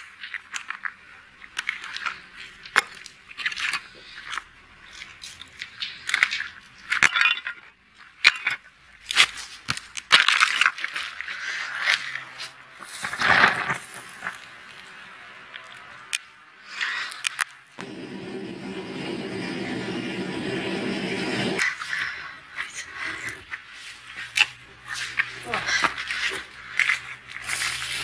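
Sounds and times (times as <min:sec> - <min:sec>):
molten metal pouring: 0:17.8 - 0:21.6.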